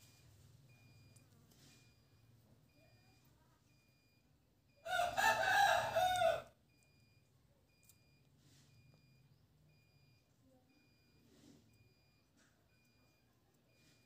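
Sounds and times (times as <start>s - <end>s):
rooster crowing: 4.8s - 6.5s.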